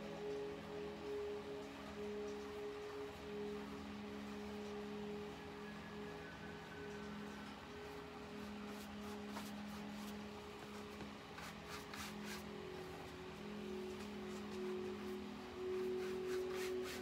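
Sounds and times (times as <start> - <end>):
soft background music: 0.0 - 17.0
paintbrush scrubbing on canvas: 8.4 - 12.5, 14.3 - 17.0.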